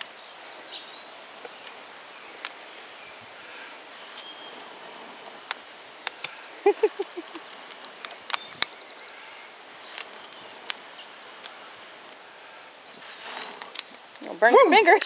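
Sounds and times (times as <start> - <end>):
tinder crackling and snapping: 0.0 - 15.0.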